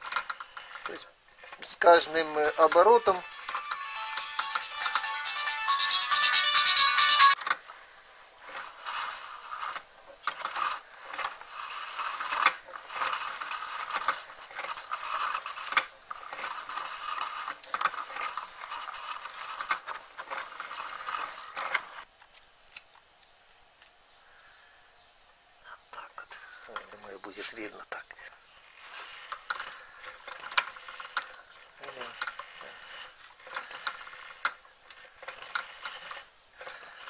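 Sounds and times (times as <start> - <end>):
hand-cranked winding machine clattering: 0.0 - 7.6, 8.4 - 22.1, 28.7 - 37.0.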